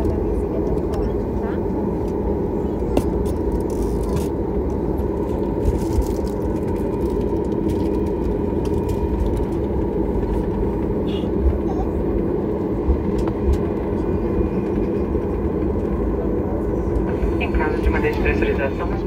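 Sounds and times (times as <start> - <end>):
jet engine rumble in cabin: 0.0 - 19.0
wheels knocking on taxiway: 7.2 - 17.0.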